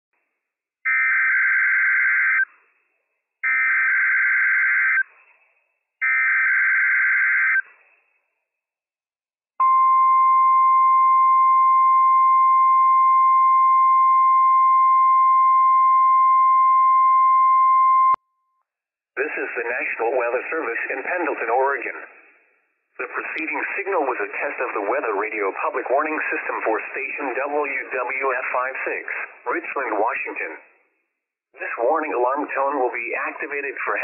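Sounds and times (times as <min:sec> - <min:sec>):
steady alarm beep: 0:09.6 - 0:18.2.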